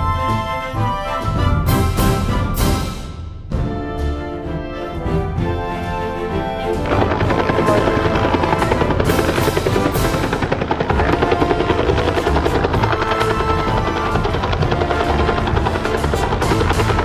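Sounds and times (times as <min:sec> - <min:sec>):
background music: 0:00.0 - 0:17.0
helicopter rotor beating: 0:06.4 - 0:17.0.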